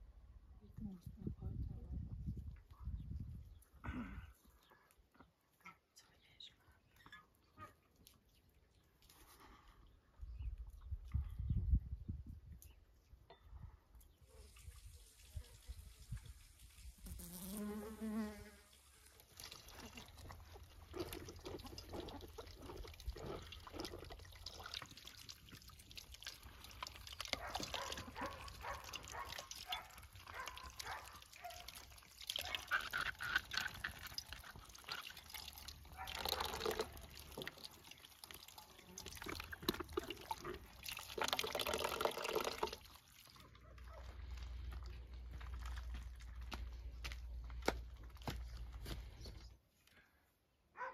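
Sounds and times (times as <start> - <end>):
honeybee buzzing: 17.0 - 18.7
water splashing and sloshing: 18.9 - 49.2.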